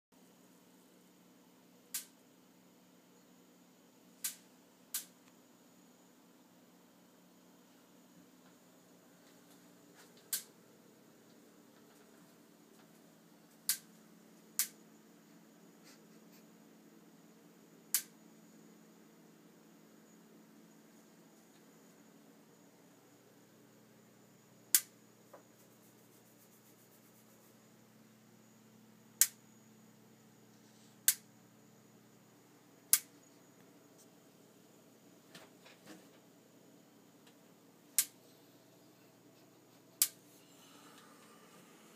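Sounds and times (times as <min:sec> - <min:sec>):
spark igniter ticking: 0:10.3 - 0:10.5, 0:14.6 - 0:14.8.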